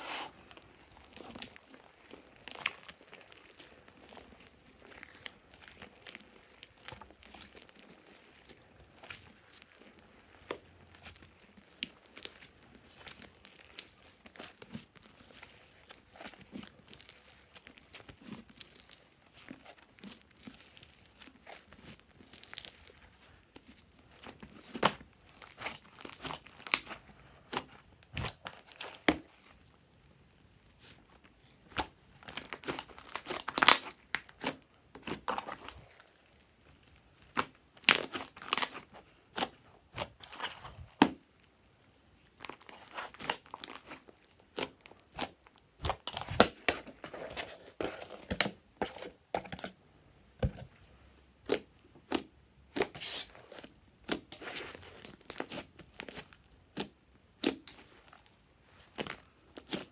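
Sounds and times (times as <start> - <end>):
slime crackling and popping: 0.3 - 49.7, 51.4 - 59.9.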